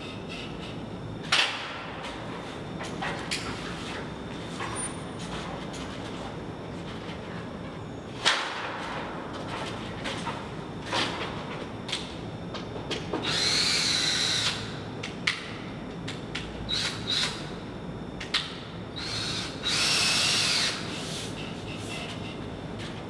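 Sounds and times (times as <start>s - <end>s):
cordless drill running: 13.2s - 14.5s, 19.0s - 20.8s.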